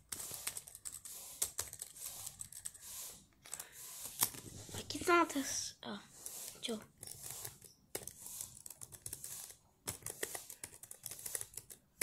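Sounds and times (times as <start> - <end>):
laptop keyboard clicking: 0.0 - 2.8, 7.0 - 12.0.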